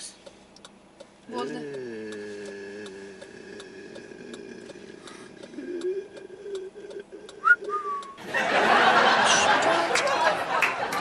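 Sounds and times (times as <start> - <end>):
soft ticking: 0.0 - 8.2
faint hum inside a car: 0.0 - 9.5.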